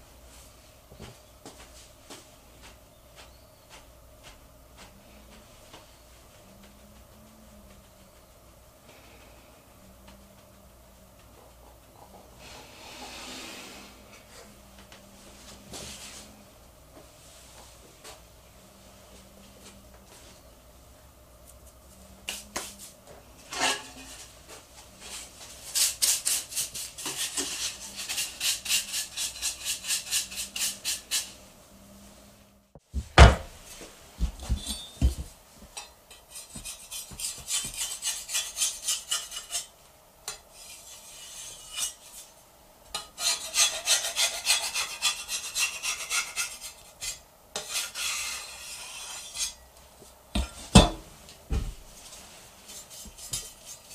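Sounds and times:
knife scraping wooden board: 43.2s - 49.6s.

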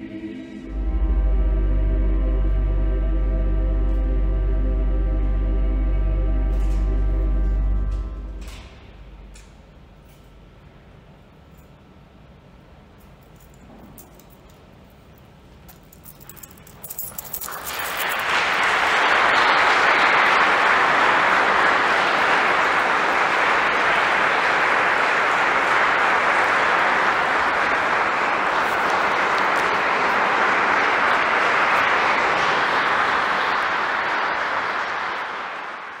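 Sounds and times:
audience applause: 17.1s - 36.0s.

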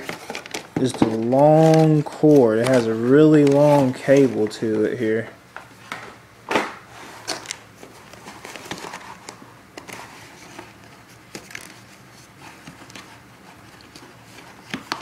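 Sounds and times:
plastic tray crinkling: 0.0s - 5.0s.

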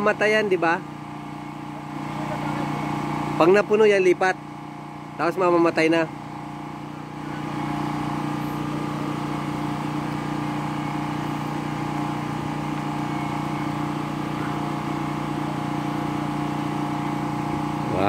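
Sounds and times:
water pump motor humming: 0.0s - 18.0s.

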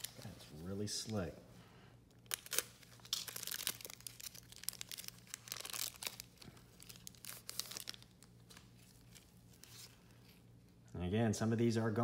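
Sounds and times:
foil wrapper crinkling and tearing: 0.0s - 0.3s, 2.2s - 10.2s.

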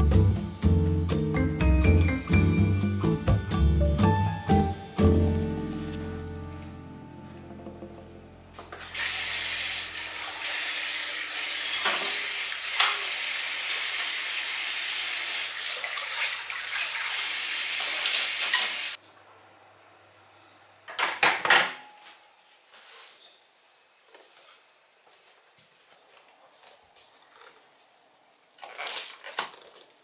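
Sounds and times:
tap water running into sink: 8.8s - 19.0s.

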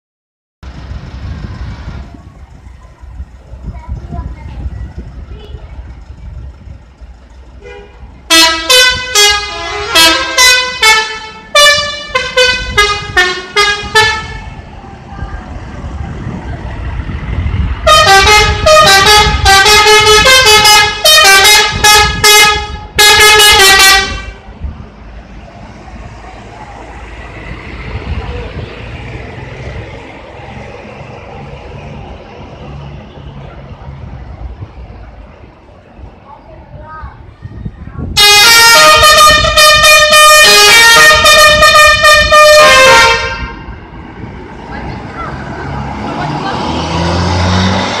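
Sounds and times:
bus engine rumble: 0.6s - 48.0s
multi-tone musical air horn: 7.6s - 14.6s, 17.8s - 24.4s, 38.2s - 43.7s.

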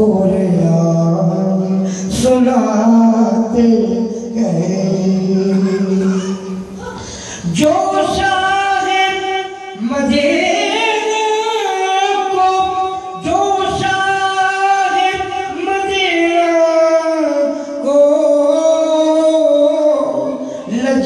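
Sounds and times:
man singing into a microphone: 0.0s - 21.0s.

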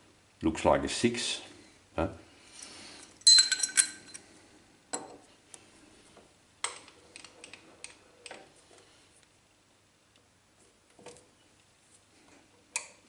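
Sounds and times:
metal ringing clink: 3.2s - 4.2s.

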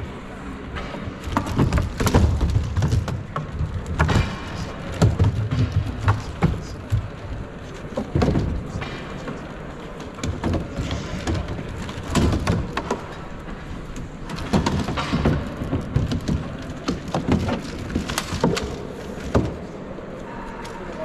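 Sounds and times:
robot feet knocking and thumping: 0.9s - 9.1s.

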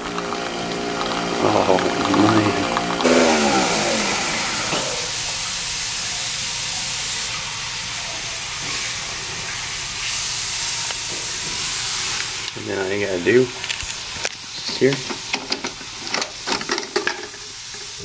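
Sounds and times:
low hum: 0.0s - 5.4s
coffee machine hissing whir: 0.0s - 18.0s.

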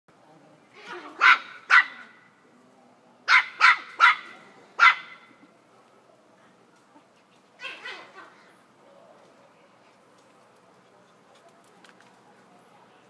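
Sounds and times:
puppy barking: 1.2s - 2.2s, 3.3s - 5.3s.

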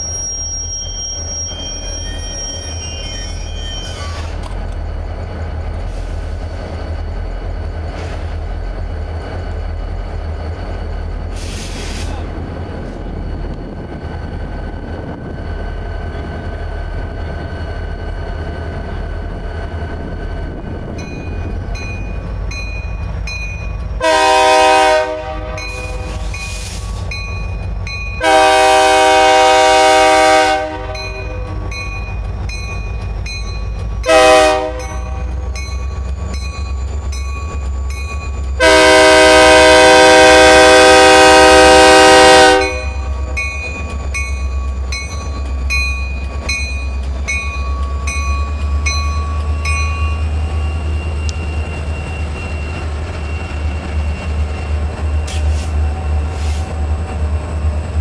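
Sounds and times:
crossing bell ringing: 0.0s - 4.2s, 20.9s - 24.2s, 25.4s - 28.7s, 30.6s - 39.8s, 42.3s - 55.5s
locomotive air horn blasts: 24.0s - 26.2s, 28.2s - 31.2s, 34.1s - 35.2s, 38.6s - 43.0s.

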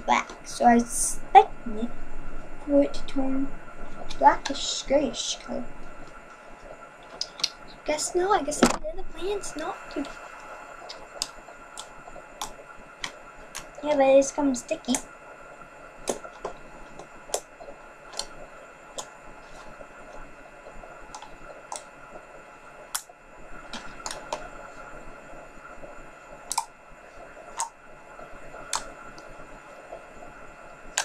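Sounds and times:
faint steady hum: 0.0s - 31.0s
small clicks and pops: 5.8s - 7.7s, 9.8s - 14.0s, 14.8s - 15.1s, 16.0s - 24.7s, 26.3s - 31.0s.

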